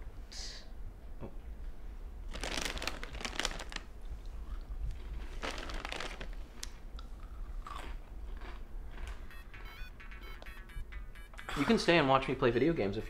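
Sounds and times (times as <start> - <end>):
plastic chip bag rustling: 2.3 - 3.9, 4.9 - 6.7.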